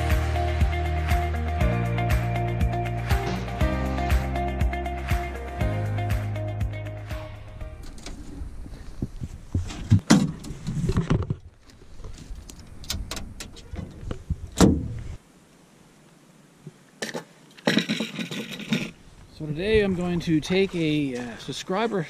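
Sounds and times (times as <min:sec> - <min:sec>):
low rumble: 0:05.7 - 0:09.6.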